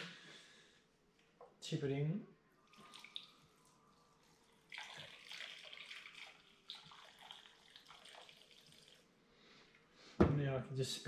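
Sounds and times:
liquid trickling: 0:02.7 - 0:09.2.

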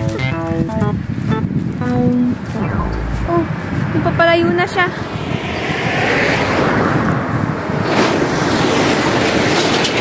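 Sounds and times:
truck engine and tyre noise: 0:02.7 - 0:10.0.

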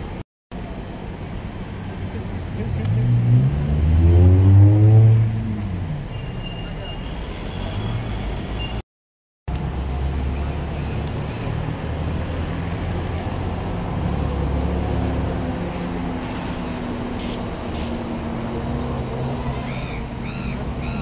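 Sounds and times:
heavy vehicle engine humming: 0:09.5 - 0:21.0
air brake hisses: 0:15.7 - 0:18.0.

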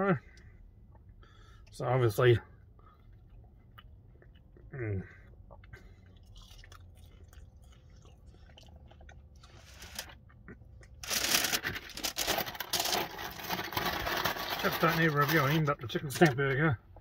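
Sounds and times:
chewing chips: 0:02.9 - 0:15.0
paper bag rustling: 0:11.0 - 0:15.7.

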